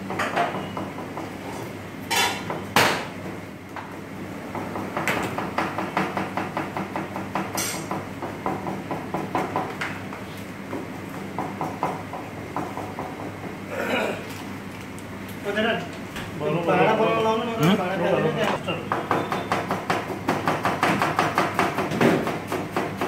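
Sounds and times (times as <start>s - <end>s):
knife chopping on plastic board: 18.9s - 23.0s.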